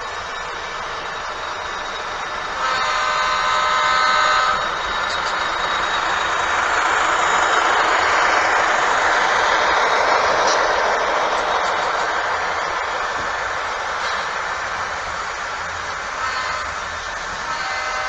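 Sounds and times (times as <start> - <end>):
model train running: 0.0 - 18.0
model train horn: 2.6 - 4.7, 16.1 - 18.0.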